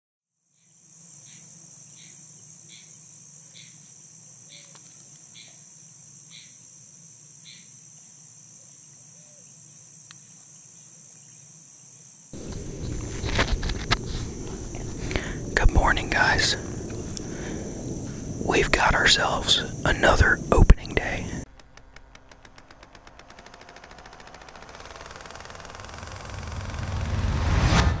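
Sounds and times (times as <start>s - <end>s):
high-pitched insect chorus: 0.4s - 21.5s
short insect chirp: 0.4s - 27.0s.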